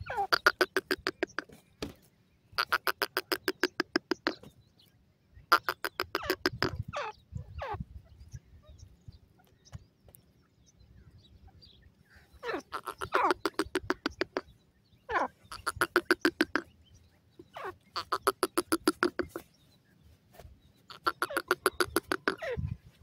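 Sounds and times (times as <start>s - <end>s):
francolin calling: 11.5s - 19.5s, 20.9s - 22.8s.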